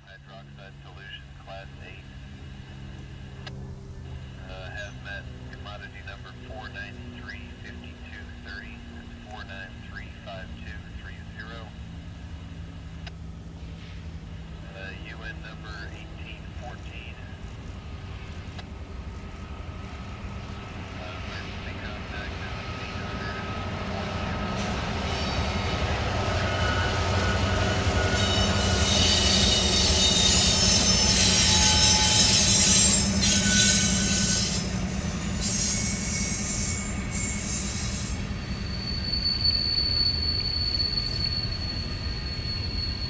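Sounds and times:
diesel locomotives rumbling: 0.0 - 43.0
train wheel squeal: 21.3 - 43.0.

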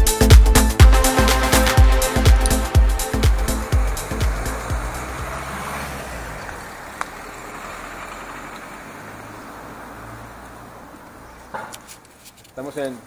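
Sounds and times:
electronic dance music: 0.0 - 5.3
street traffic noise: 0.0 - 13.0.

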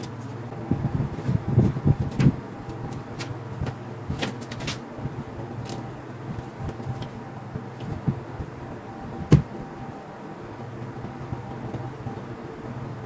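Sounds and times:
steady low hum: 0.0 - 13.0
handling thumps and knocks: 5.6 - 8.6.

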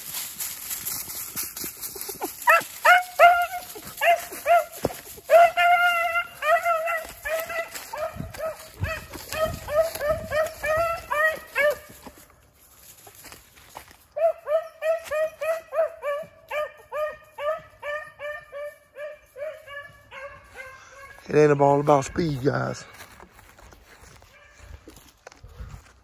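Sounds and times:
dog barking in short yelps: 2.5 - 11.9, 14.2 - 21.2.

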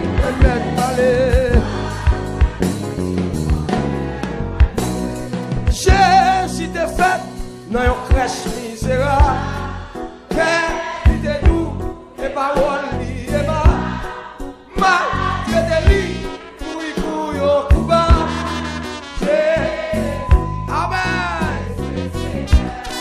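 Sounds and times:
steady drum beat: 0.0 - 9.7, 10.3 - 12.0, 12.6 - 14.2, 14.8 - 16.4, 17.7 - 18.6, 20.2 - 20.8, 22.4 - 23.0
backing band with bass: 0.0 - 23.0.

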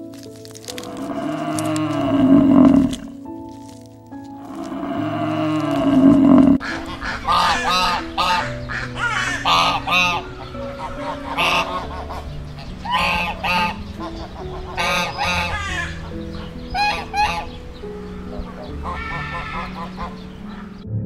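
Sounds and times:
background music: 0.0 - 21.0
ducks quacking: 4.4 - 20.8.

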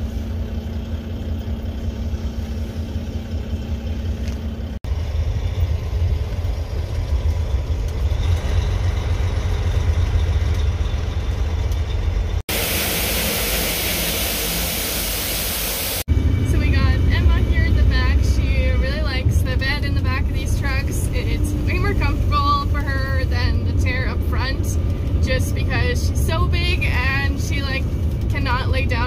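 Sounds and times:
diesel truck engine running: 0.0 - 29.0
grain pouring hiss: 12.5 - 16.0.

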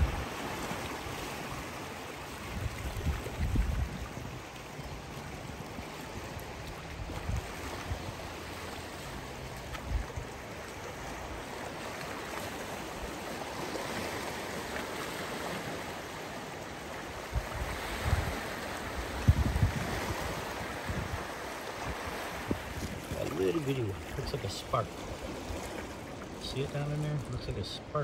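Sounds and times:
wind gusts on microphone: 0.0 - 4.6, 5.4 - 8.6, 9.2 - 11.6, 17.0 - 28.0
lake waves washing ashore: 0.0 - 28.0.

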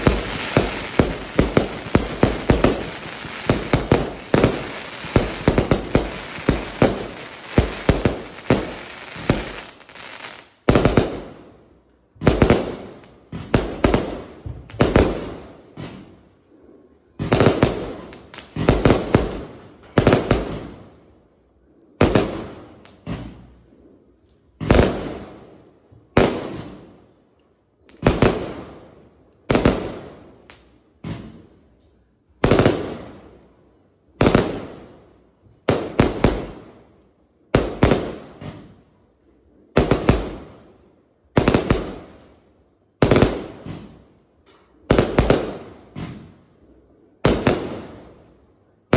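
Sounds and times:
loud fireworks bangs: 0.0 - 11.4, 12.2 - 16.2, 17.1 - 20.9, 37.6 - 38.8, 39.7 - 40.7, 41.3 - 42.3, 43.0 - 44.1, 44.9 - 46.4, 47.2 - 48.2
fireworks firing: 0.0 - 11.6, 12.2 - 16.2, 17.1 - 20.9, 24.6 - 25.5, 26.1 - 27.0, 27.9 - 28.9, 32.4 - 33.3, 35.6 - 36.8, 37.6 - 38.8, 39.8 - 42.3, 43.0 - 44.1, 44.9 - 46.5, 47.2 - 48.3.

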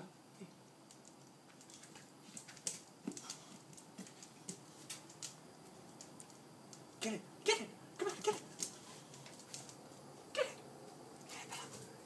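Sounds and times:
dog claws tapping on patio: 0.8 - 7.0, 8.0 - 10.0.

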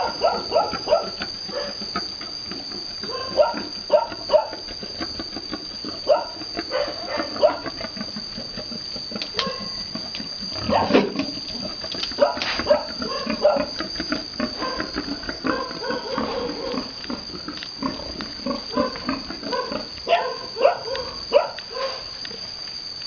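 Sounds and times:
high-pitched hum: 0.0 - 23.0
pigs grunting: 12.4 - 21.2.

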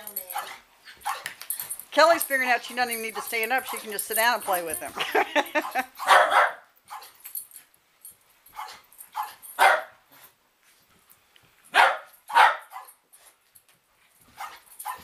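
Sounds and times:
dog barking: 0.3 - 1.3, 5.6 - 7.2, 8.6 - 10.0, 11.7 - 13.0, 14.4 - 15.0.

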